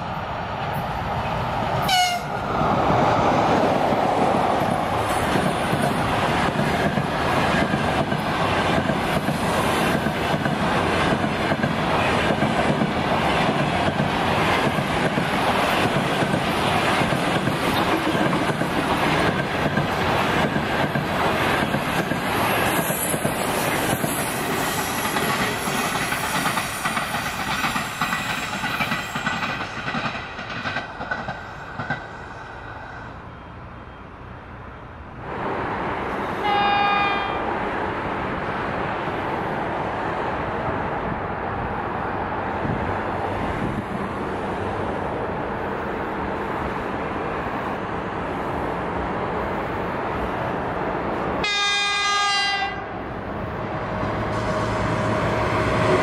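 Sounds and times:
locomotive horn blast: 1.8 - 2.4, 36.4 - 37.4, 51.4 - 53.0
train wheels clattering over rail joints: 5.1 - 32.2.

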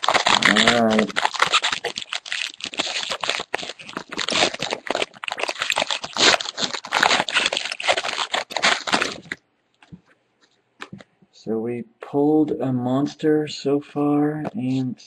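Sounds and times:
foil wrapper crinkling: 0.0 - 10.0.

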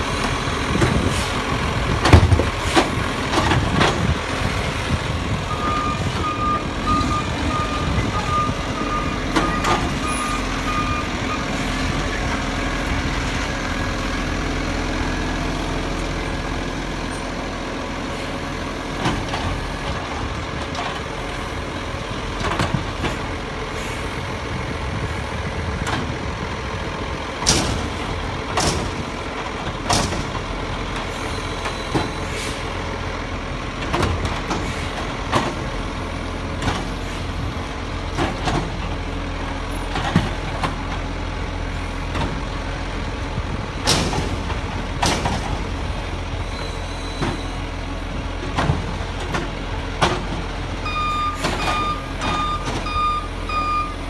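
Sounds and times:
garbage truck engine humming: 0.0 - 54.0
reversing alarm beeping: 5.5 - 11.6, 50.8 - 54.0.

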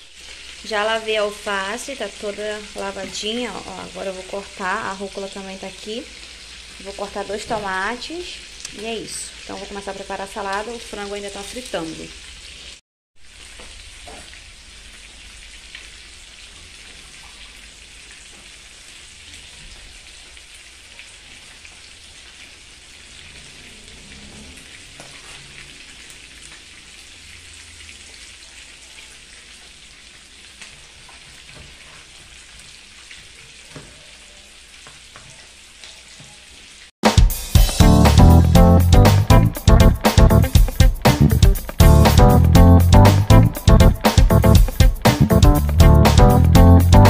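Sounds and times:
chicken sizzling in oil: 0.0 - 42.2, 42.8 - 47.0.

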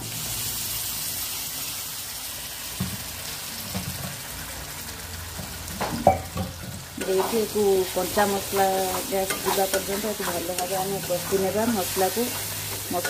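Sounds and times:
paste sizzling in hot oil: 0.0 - 13.0
utensils scraping a metal pan: 7.0 - 13.0.

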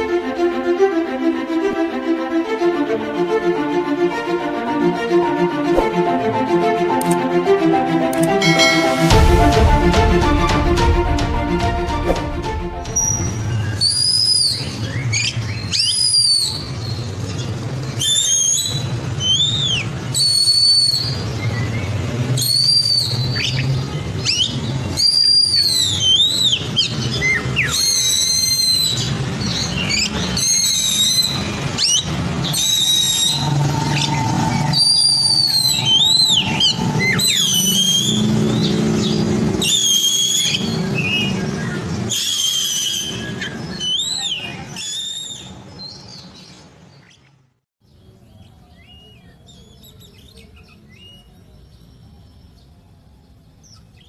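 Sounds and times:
bird singing whistled phrases: 13.0 - 17.0, 18.0 - 21.7, 22.4 - 23.7, 24.3 - 46.0.

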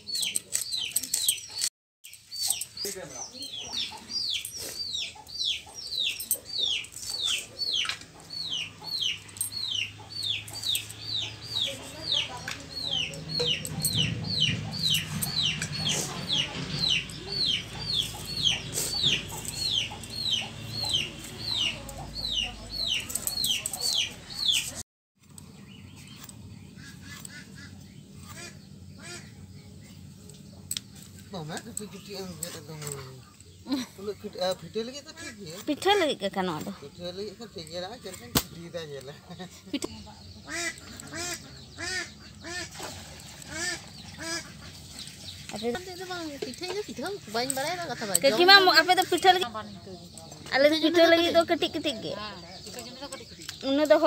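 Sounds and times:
chick peeping: 2.4 - 24.8.

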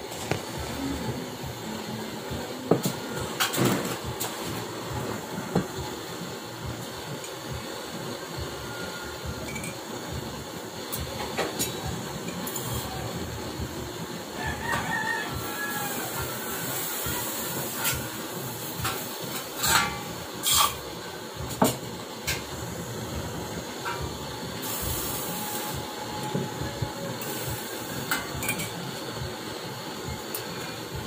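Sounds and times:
gas torch flame hissing: 0.0 - 31.0
metal tools clicking and tapping: 9.5 - 9.8, 28.1 - 28.8.

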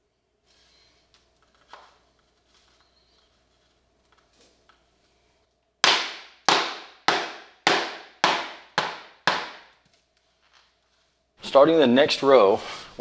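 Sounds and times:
mallet tapping floor plank: 5.8 - 9.7.

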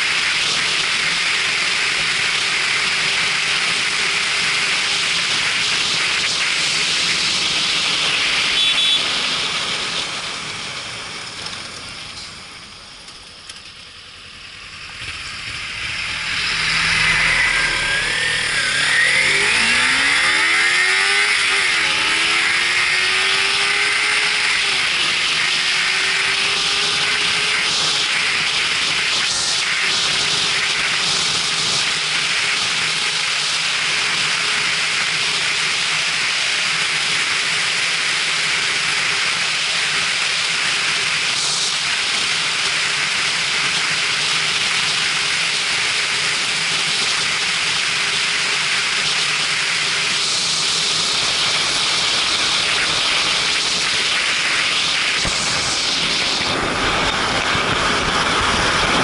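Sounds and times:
motorcycle engine droning: 0.0 - 59.0
wind rushing over microphone: 49.3 - 59.0.

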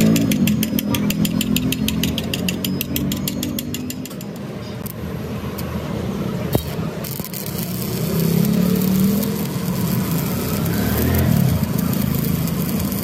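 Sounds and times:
metallic tapping on crankshaft: 0.0 - 4.5.

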